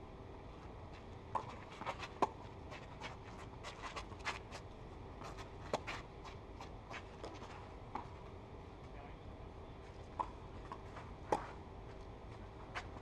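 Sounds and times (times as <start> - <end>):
tennis balls struck by rackets: 10.1 - 11.6.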